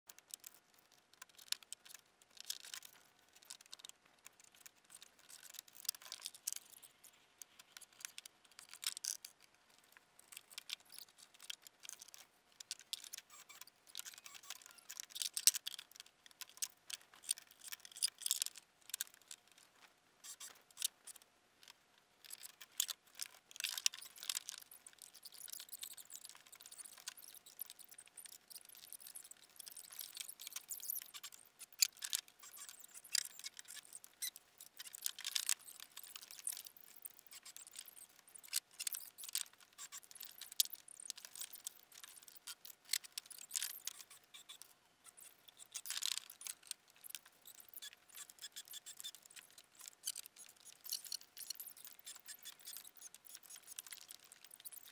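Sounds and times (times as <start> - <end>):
light clicks and rattles: 0.1 - 54.9.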